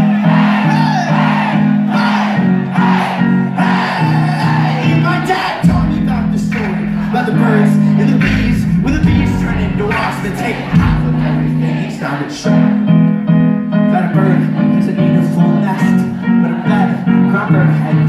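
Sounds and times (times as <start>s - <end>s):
live band chords: 0.0s - 18.0s
person singing: 3.6s - 13.0s, 13.9s - 18.0s
deep bass: 4.4s - 12.2s.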